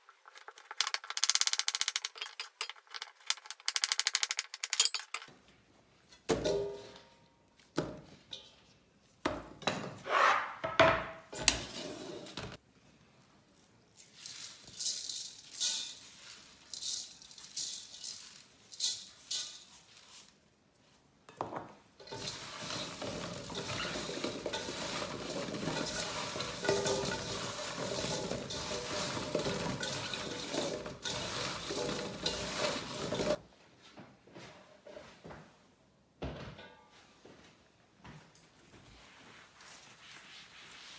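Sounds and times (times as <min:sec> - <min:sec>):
salt sprinkled onto radish: 0:14.0 - 0:20.4
radish cubes scraping steel bowl: 0:22.0 - 0:33.4.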